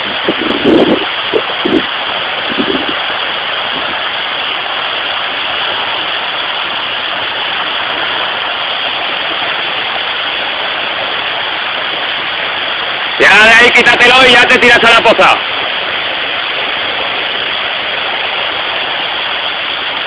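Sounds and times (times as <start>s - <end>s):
waterfall pouring: 0.0s - 20.0s.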